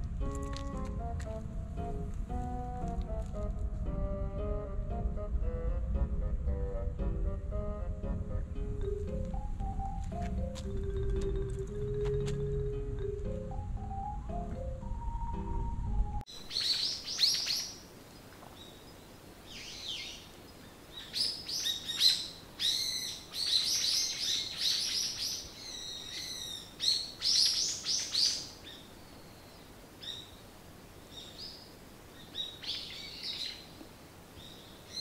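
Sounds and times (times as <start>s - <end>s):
small birds chirping and trilling: 16.4s - 35.0s.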